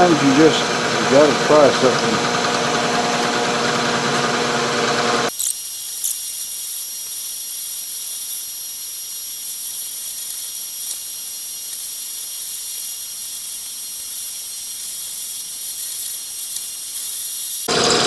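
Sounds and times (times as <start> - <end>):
milling machine cutting metal: 0.0 - 6.2, 13.1 - 18.0.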